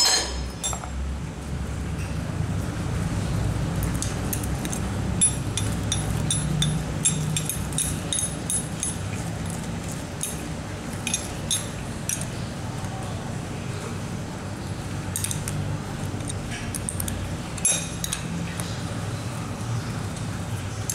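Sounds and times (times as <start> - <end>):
spanner clinking on nuts: 0.0 - 0.9, 4.3 - 9.6, 11.0 - 12.3, 16.3 - 18.3.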